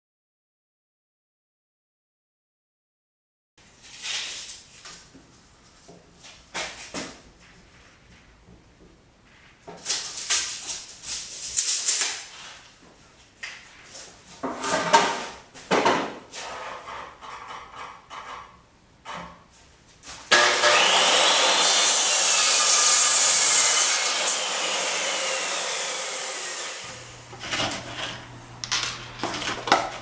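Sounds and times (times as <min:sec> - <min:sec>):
wooden board scraping and knocking: 0:14.4 - 0:16.2.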